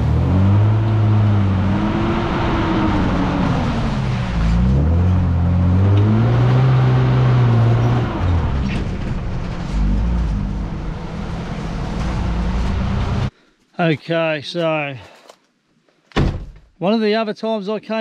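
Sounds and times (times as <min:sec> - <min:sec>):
vehicle engine driving on dirt track: 0:00.0 - 0:13.3.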